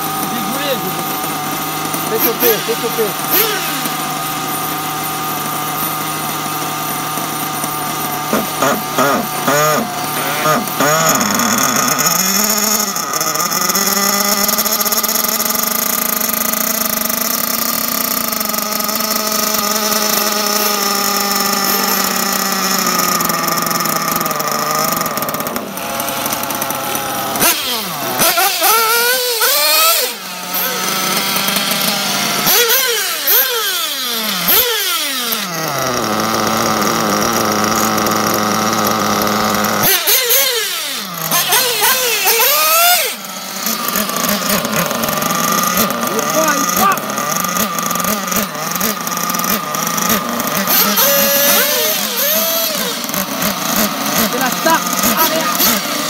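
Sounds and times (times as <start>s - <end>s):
small nitro engine revving: 0.0s - 56.0s.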